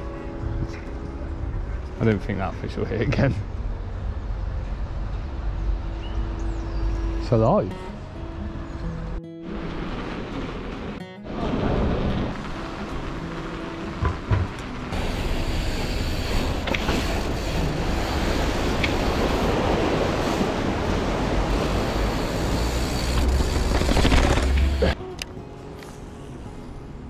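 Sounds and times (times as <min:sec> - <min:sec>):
rushing river water: 0:09.4 - 0:25.2
wind buffeting: 0:09.6 - 0:24.8
bike tyre rumble on pavement: 0:11.4 - 0:25.0.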